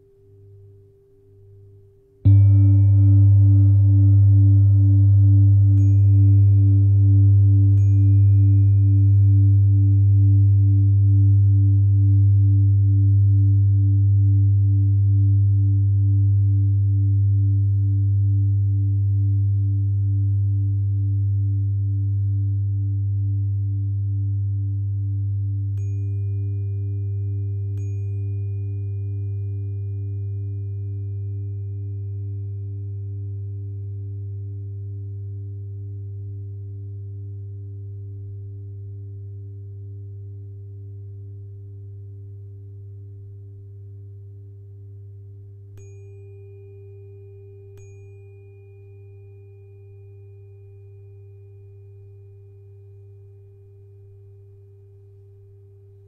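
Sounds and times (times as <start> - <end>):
tuning fork ringing: 0.0 - 56.0
low hum: 2.3 - 22.1.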